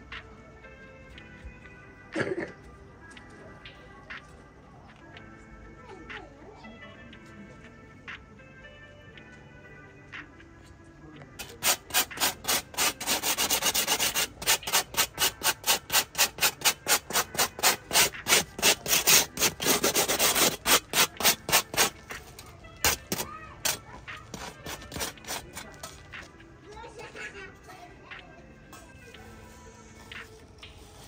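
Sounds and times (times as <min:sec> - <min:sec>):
rubbing crisp flatbread crust: 0:11.4 - 0:22.0.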